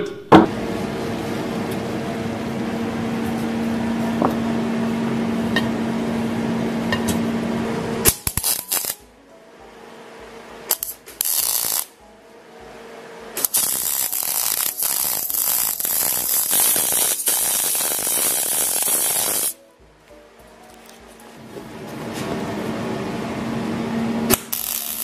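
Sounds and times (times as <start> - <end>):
arc welding crackle: 8.0 - 9.1, 10.7 - 12.0, 13.4 - 19.6, 24.3 - 25.0.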